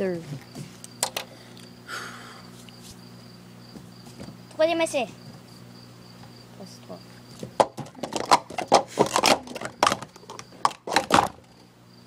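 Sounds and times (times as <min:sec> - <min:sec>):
plastic cups clacking and rattling: 0:07.5 - 0:11.5.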